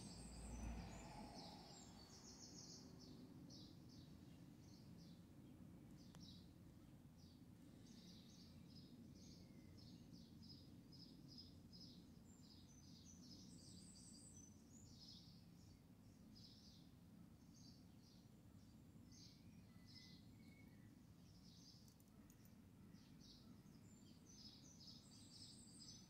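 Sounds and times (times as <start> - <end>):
low steady rumble: 0.0 - 2.5
faint bird chirping: 0.0 - 26.0.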